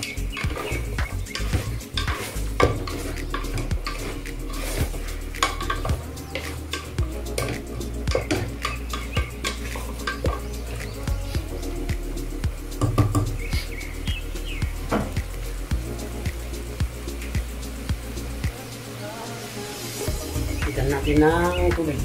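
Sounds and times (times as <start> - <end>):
spatula knocking and scraping pot: 0.0 - 10.9, 12.8 - 13.6
meat sizzling: 0.0 - 22.0.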